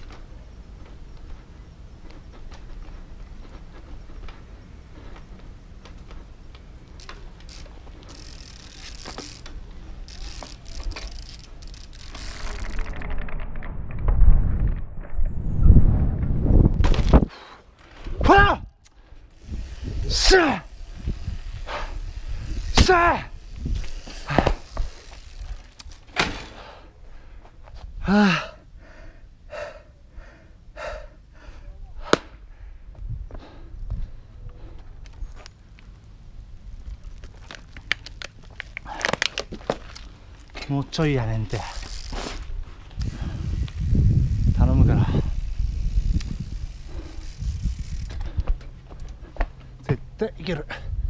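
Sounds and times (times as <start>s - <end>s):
bike tyres and frame knocking: 0.0s - 14.1s, 21.0s - 26.6s, 36.7s - 44.4s
freewheel ratchet ticking: 7.1s - 12.4s, 43.0s - 48.2s
person breathing hard and gasping: 28.0s - 33.8s.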